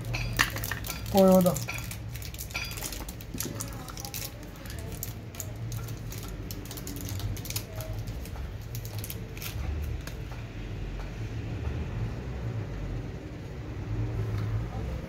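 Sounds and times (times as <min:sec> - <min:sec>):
small metal parts clicking: 0:00.0 - 0:10.2.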